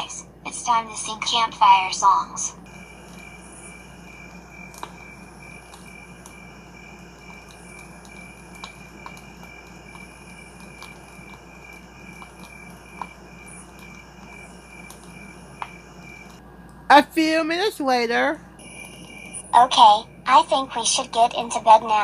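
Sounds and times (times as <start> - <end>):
crickets chirping: 0.0 - 16.4, 18.5 - 22.0
faint clicks: 2.6 - 16.8.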